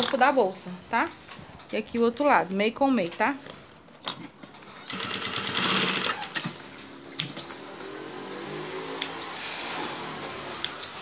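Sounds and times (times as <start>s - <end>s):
sewing machine stitching: 4.8s - 7.4s.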